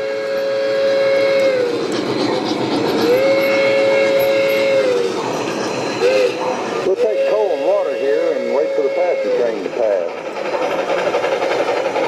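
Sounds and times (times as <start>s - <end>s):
steam whistle blasts: 0.0s - 1.8s, 3.0s - 5.2s, 6.0s - 9.6s
model locomotive running sounds: 0.0s - 12.0s.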